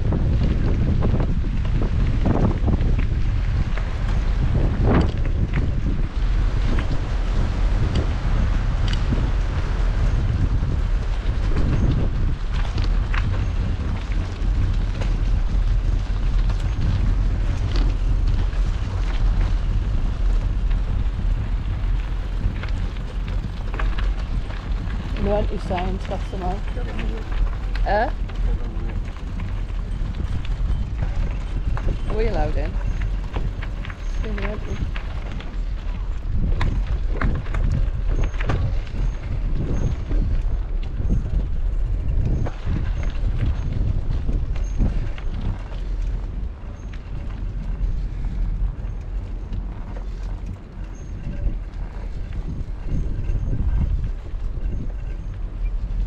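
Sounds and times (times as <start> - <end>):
faint bicycle ticks and rattles: 0.0 - 56.0
tyres rumbling on rough asphalt: 0.0 - 56.0
wind buffeting microphone: 0.0 - 56.0.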